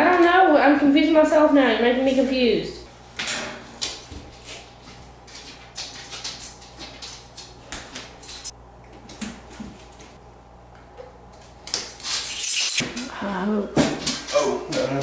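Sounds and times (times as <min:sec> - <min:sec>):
velcro scratchy rustle: 0:12.0 - 0:12.8.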